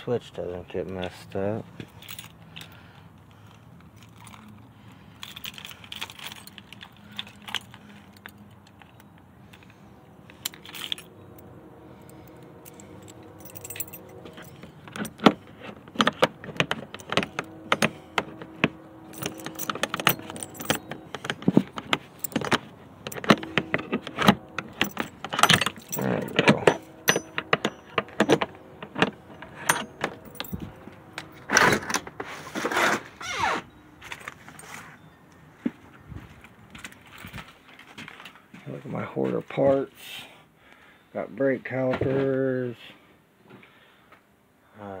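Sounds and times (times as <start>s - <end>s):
metal objects clinking and rattling: 3.9s - 32.1s.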